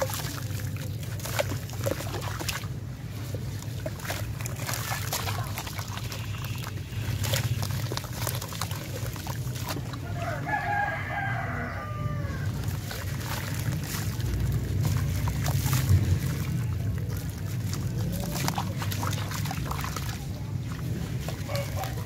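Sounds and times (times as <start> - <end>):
slurry sloshing: 0.0 - 22.0
wet cement crumbling by hand: 3.4 - 10.4, 12.2 - 22.0.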